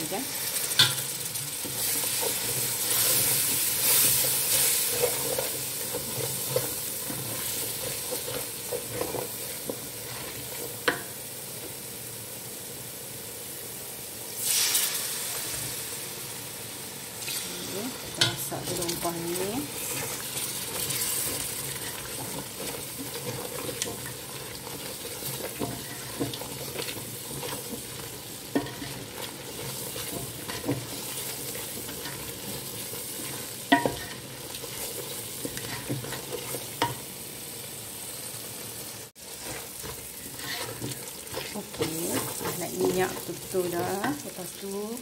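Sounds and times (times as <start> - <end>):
paste frying and bubbling in oil: 0.0 - 45.0
spatula stirring and scraping: 0.1 - 11.2, 18.0 - 37.1, 39.1 - 44.7.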